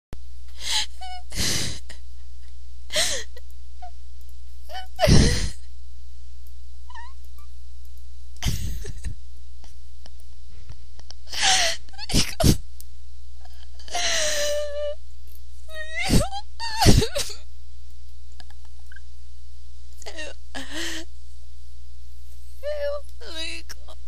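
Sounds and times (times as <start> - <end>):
low electrical hum: 0.2 - 24.0
person sobbing: 0.6 - 2.0, 2.9 - 3.4, 4.7 - 5.6, 8.4 - 9.1, 11.2 - 12.6, 13.4 - 15.0, 15.7 - 17.4, 20.0 - 21.1.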